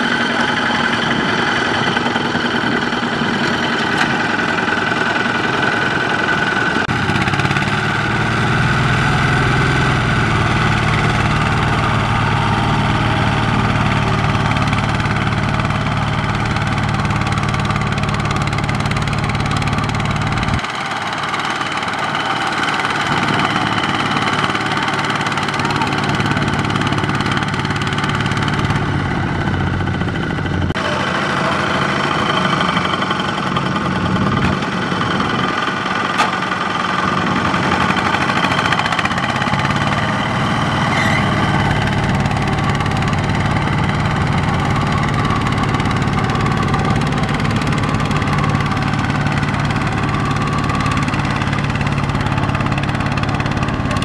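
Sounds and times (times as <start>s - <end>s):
diesel engine rumbling: 0.0s - 54.0s.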